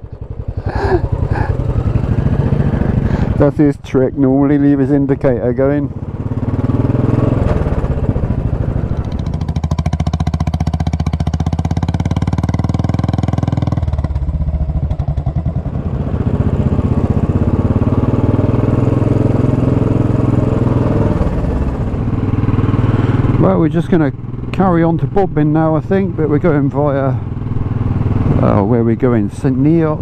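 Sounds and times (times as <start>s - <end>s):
motorcycle engine running: 0.0s - 30.0s.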